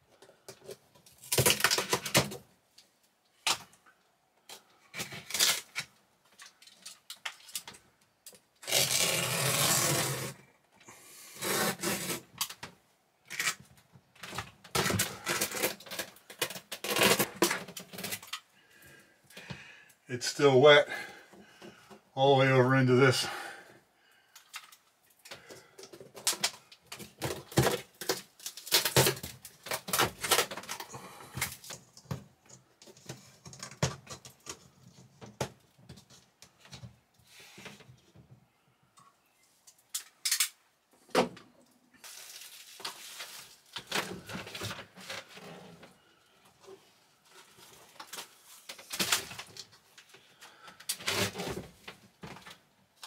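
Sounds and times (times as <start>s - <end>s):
insulation tearing crackles and snaps: 0.5s - 3.8s, 4.4s - 10.4s, 11.4s - 18.5s, 24.3s - 36.8s, 39.6s - 40.6s, 41.6s - 45.8s, 46.6s - 53.0s.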